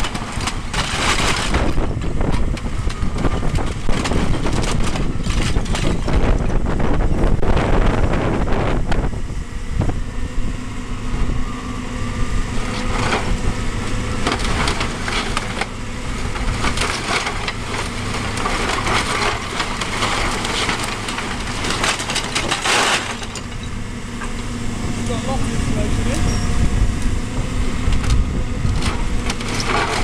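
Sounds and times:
timbers and tiles crunching: 0:00.0 - 0:06.7, 0:12.6 - 0:26.5, 0:27.9 - 0:30.0
debris crashing down: 0:00.0 - 0:06.8, 0:12.8 - 0:26.1, 0:27.9 - 0:30.0
diesel engine running: 0:00.0 - 0:30.0.

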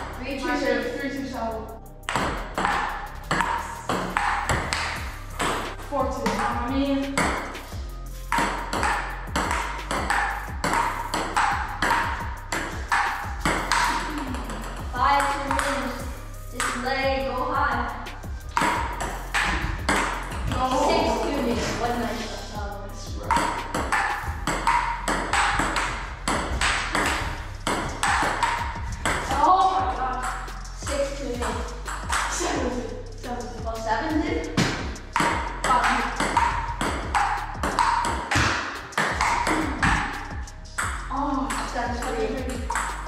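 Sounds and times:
table tennis ball ticking: 0:02.1 - 0:05.6, 0:08.3 - 0:16.0, 0:16.6 - 0:21.5, 0:23.2 - 0:32.6, 0:34.5 - 0:43.0.

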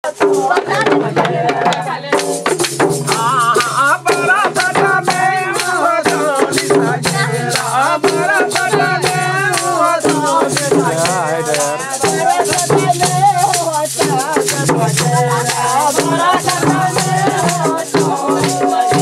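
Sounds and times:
barrel drums beating: 0:00.0 - 0:19.0
voices singing: 0:00.0 - 0:19.0.

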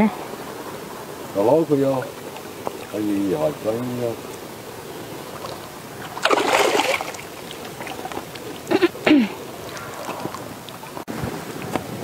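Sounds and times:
fish net splashing in water: 0:05.4 - 0:08.7.

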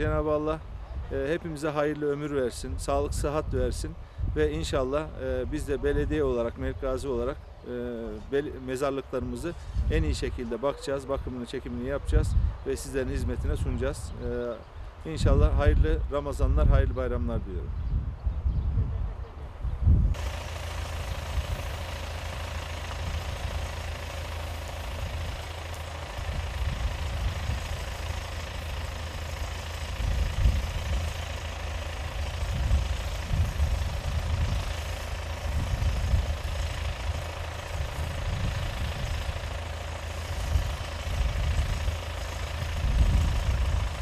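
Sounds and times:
gusting low rumble: 0:17.9 - 0:44.0
spray pump engine running: 0:20.1 - 0:44.0
lance spraying mist: 0:20.2 - 0:42.8.

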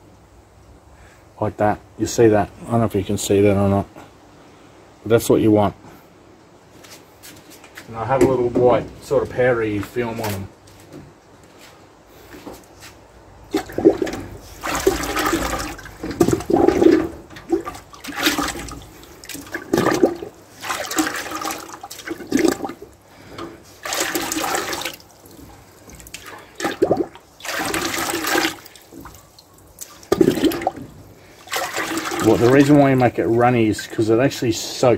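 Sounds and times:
crucible dunked into bucket: 0:13.5 - 0:22.8, 0:23.4 - 0:25.0, 0:26.0 - 0:29.2, 0:29.8 - 0:32.9
slurry sloshing and splashing: 0:13.5 - 0:33.2.

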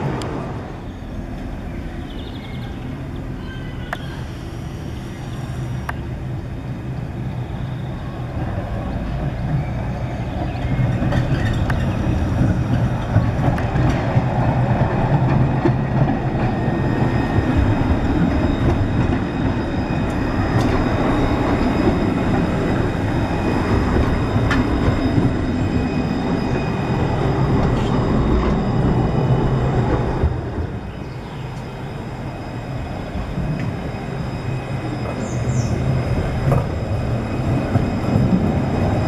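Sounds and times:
tram wheels rumbling on rails: 0:00.0 - 0:39.0
faint high whine: 0:16.2 - 0:39.0.

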